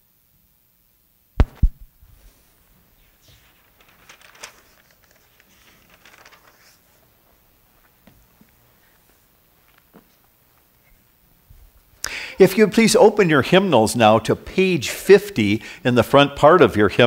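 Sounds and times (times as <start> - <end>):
sharp knocks: 1.4 - 1.9
faint rustling: 2.0 - 12.0.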